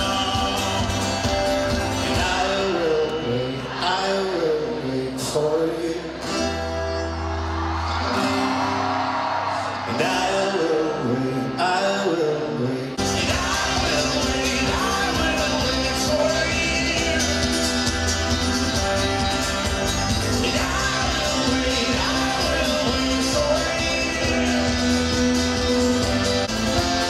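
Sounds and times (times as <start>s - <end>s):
drums: 0.0s - 3.8s, 13.0s - 27.0s
live band playing: 0.0s - 3.8s, 13.0s - 27.0s
person singing: 0.0s - 6.9s, 9.8s - 27.0s.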